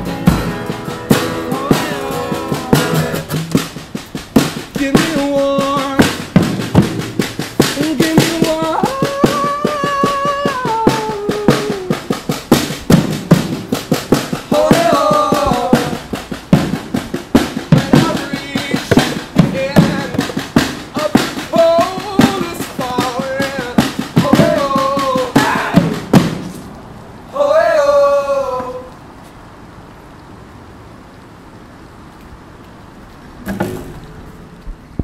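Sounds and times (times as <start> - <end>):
drum struck with rods and mallet: 0.0 - 26.6
acoustic guitars: 0.0 - 27.8
person singing long held notes: 1.0 - 3.4, 7.8 - 12.2, 14.5 - 16.2, 20.9 - 26.1, 27.3 - 29.0.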